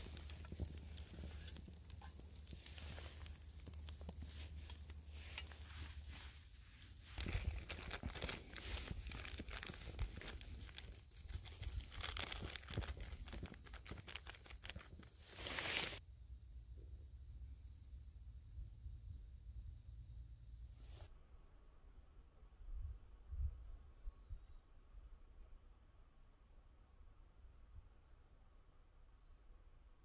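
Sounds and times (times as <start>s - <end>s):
plastic zipper bag crinkling: 0.0s - 6.3s, 7.0s - 16.0s.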